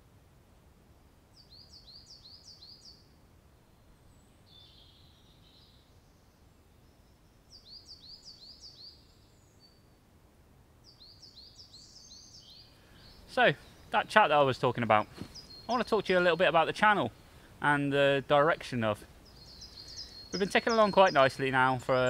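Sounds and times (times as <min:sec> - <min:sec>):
songbird singing: 0:01.2 - 0:10.1, 0:10.8 - 0:22.0
faint bird call: 0:19.2 - 0:21.1.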